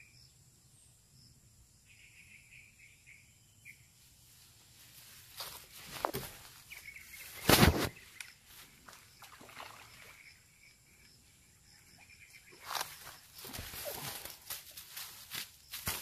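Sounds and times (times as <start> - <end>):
rustling of clothing and grass: 3.9 - 10.3, 12.2 - 16.0.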